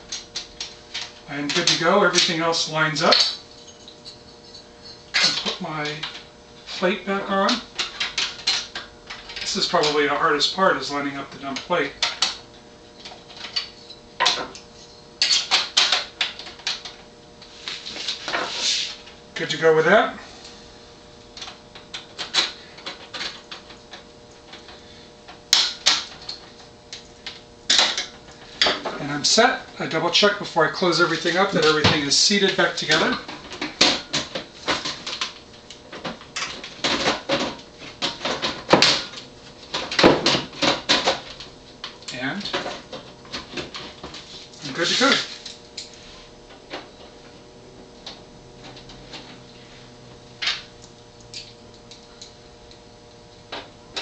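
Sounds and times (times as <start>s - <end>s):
computer side panel scraping: 17.5s - 19.0s.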